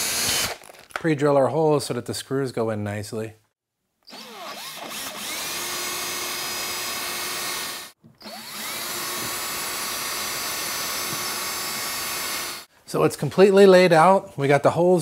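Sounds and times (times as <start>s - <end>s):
cordless drill whirring: 0.0s - 0.6s, 4.1s - 12.7s.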